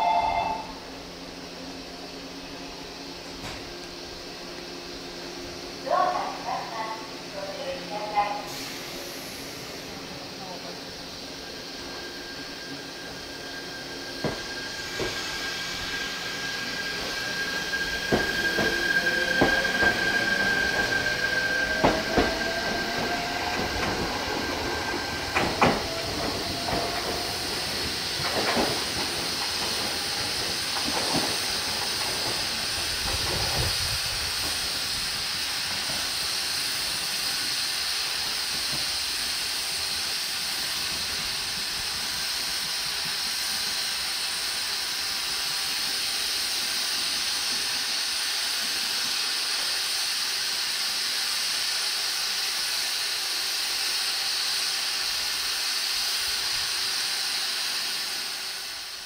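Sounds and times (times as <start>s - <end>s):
steady hiss: 23.9s - 59.0s
train wheels knocking on rail joints: 25.3s - 33.6s.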